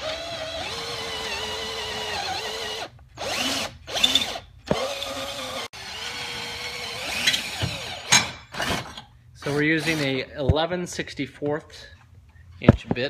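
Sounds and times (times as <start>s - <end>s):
power drill whining: 0.0s - 10.2s.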